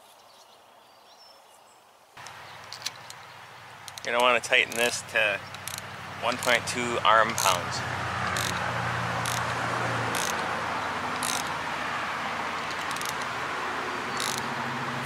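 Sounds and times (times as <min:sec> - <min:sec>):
hand ratchet clicking: 0:03.8 - 0:11.8, 0:12.5 - 0:13.4, 0:14.1 - 0:14.5.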